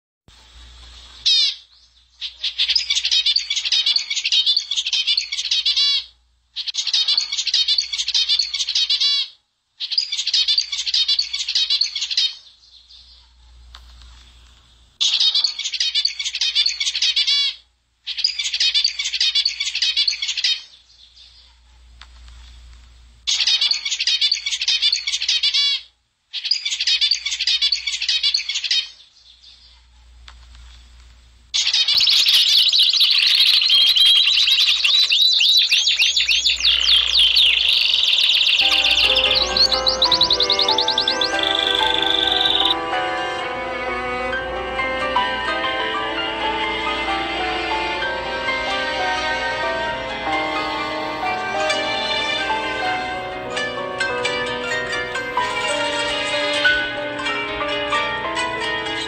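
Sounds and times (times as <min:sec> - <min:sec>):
small birds chirping: 0:01.0 - 0:13.4, 0:15.0 - 0:21.7, 0:23.3 - 0:29.9, 0:31.6 - 0:42.8.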